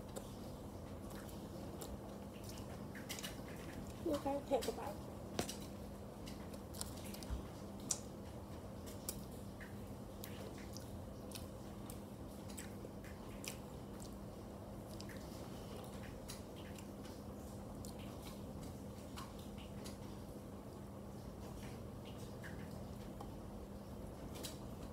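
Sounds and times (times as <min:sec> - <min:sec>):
person chewing: 0:00.0 - 0:04.0, 0:05.4 - 0:08.1, 0:10.2 - 0:16.9
faint steady hum: 0:00.0 - 0:24.9.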